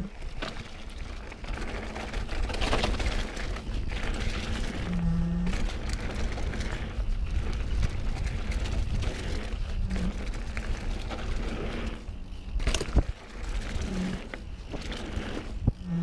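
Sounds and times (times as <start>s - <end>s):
bike tyres rumbling on trail: 0.0s - 16.0s
camera gimbal vibrating buzz: 4.7s - 5.8s, 9.8s - 10.3s, 13.7s - 16.0s.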